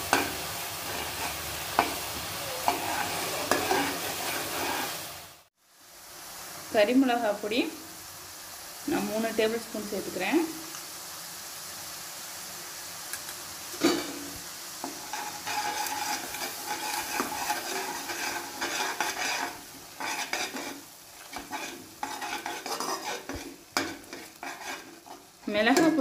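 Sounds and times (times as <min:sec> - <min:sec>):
masala sizzling in oil: 0:00.0 - 0:26.0
metal spatula scraping pan: 0:02.6 - 0:05.1, 0:13.8 - 0:26.0.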